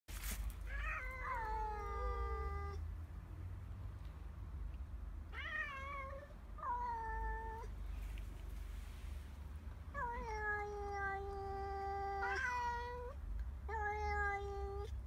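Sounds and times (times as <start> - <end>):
cats yowling: 0.6 - 2.8, 5.4 - 7.7, 10.0 - 14.9.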